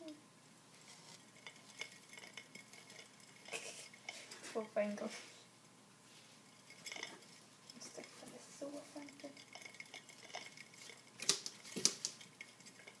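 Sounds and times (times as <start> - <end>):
hamster wheel disc spinning: 0.0 - 5.4, 6.1 - 13.0
sharp plastic clacks: 11.2 - 12.3.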